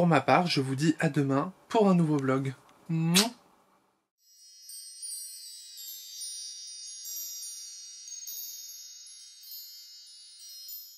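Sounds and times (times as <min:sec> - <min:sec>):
high-pitched twinkling chimes: 0:04.2 - 0:10.9.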